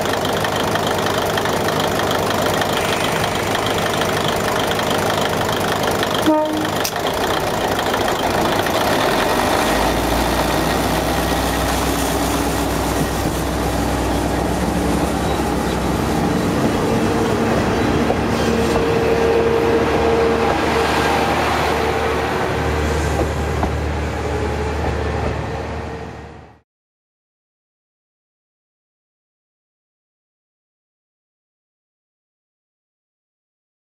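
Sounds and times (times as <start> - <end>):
diesel railcar engine droning: 0.0 - 26.6
railcar bogies running: 0.0 - 26.6.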